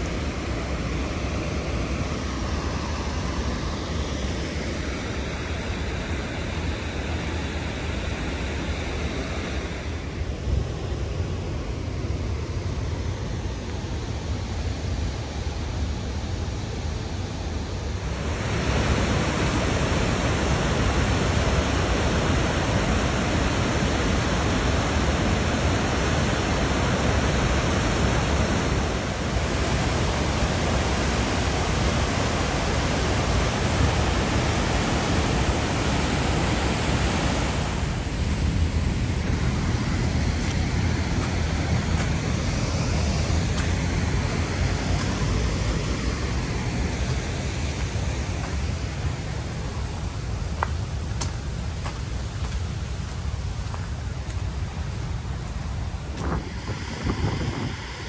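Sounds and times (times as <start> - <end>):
waterfall rushing: 18.0 - 50.0.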